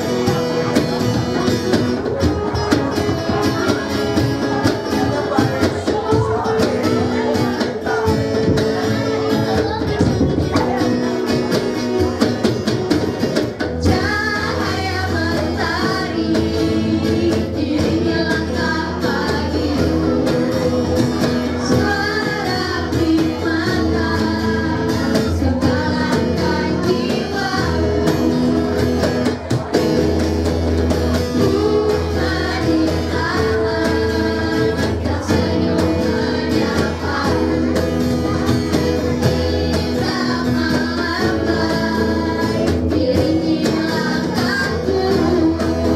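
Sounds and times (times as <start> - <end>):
cajon drumming: 0.0 - 45.9
guitars playing: 0.0 - 45.9
girls singing through pa: 13.5 - 45.9.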